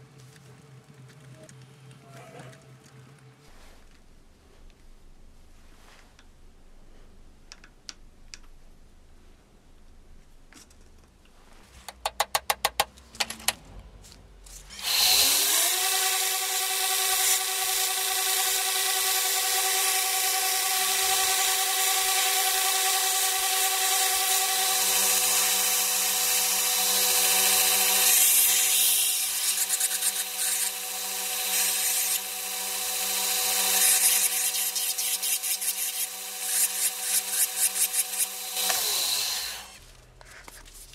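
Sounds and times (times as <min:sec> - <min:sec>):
sharp taps: 0:11.9 - 0:13.4
wood grinding on abrasive belt: 0:14.4 - 0:40.0
belt grinder motor running: 0:14.6 - 0:39.8.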